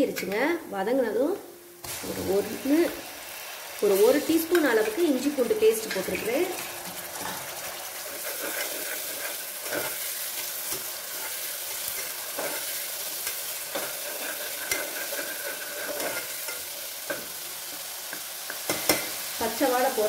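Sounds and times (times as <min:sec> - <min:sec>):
onions sizzling in hot oil: 0:00.6 - 0:20.0
steel ladle scraping pot: 0:05.8 - 0:16.6.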